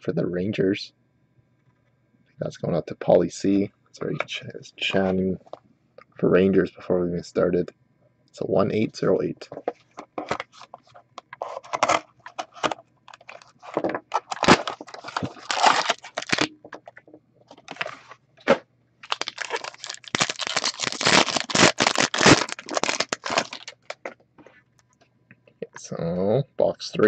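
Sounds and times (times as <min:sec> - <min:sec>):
foil pack crinkling: 0:11.4 - 0:16.5, 0:17.6 - 0:18.1, 0:19.0 - 0:24.2
cardboard box tearing: 0:14.1 - 0:16.5, 0:19.1 - 0:23.7.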